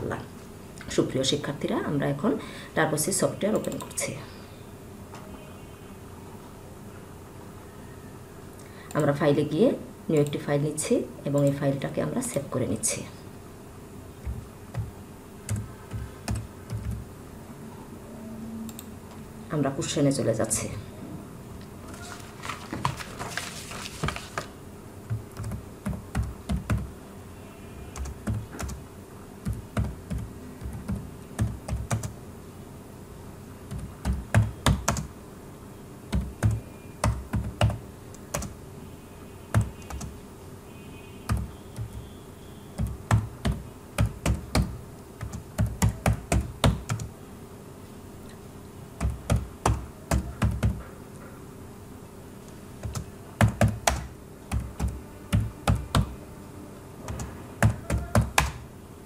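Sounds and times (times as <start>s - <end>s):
typing on keyboard: 15.5s - 17.0s, 25.1s - 26.9s, 27.9s - 28.8s, 29.4s - 32.2s, 33.7s - 35.1s, 36.1s - 38.6s, 39.5s - 40.2s, 41.3s - 42.0s, 42.8s - 47.1s, 49.0s - 50.8s, 52.8s - 56.2s, 57.0s - 58.6s.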